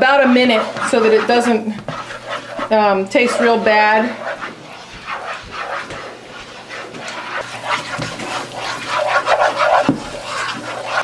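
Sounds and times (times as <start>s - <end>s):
spatula scraping a skillet: 0.0s - 11.0s.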